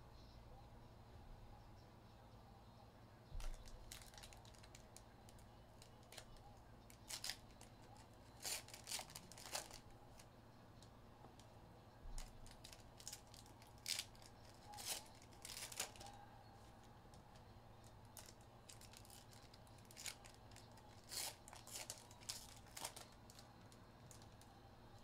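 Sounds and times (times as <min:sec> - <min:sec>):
packaging tearing and crinkling: 0:03.4 - 0:04.8, 0:07.0 - 0:07.7, 0:08.4 - 0:09.8, 0:12.2 - 0:16.1, 0:18.2 - 0:23.4.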